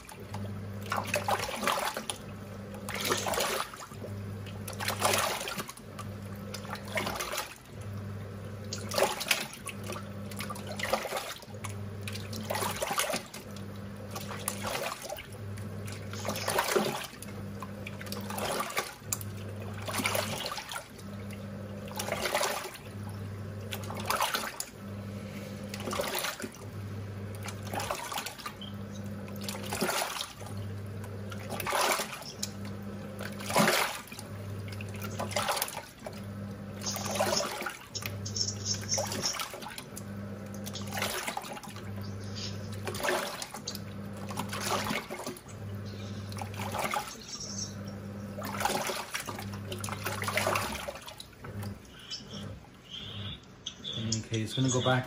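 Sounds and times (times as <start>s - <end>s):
water sloshing in drum: 0.0s - 52.8s
washing machine motor humming: 0.0s - 55.0s.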